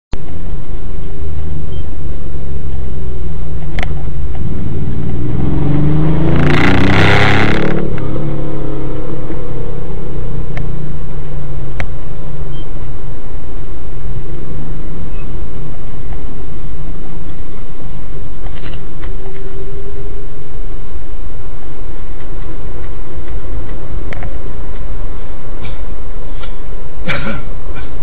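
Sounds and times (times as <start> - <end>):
road vehicle rumble: 0.1 - 28.0
vehicle passing close by: 4.0 - 11.7.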